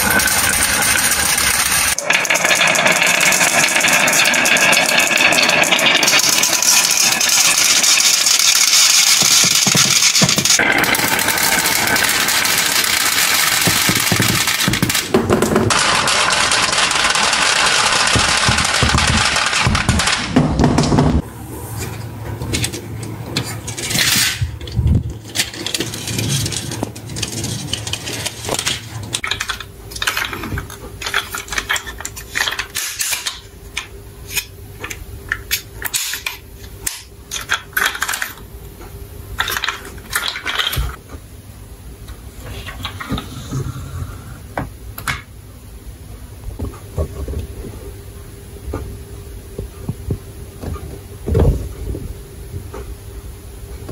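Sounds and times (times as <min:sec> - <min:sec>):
glass marbles rattling down wood: 0:00.0 - 0:20.2
toy trucks clicking and knocking: 0:00.0 - 0:21.0, 0:22.5 - 0:38.4.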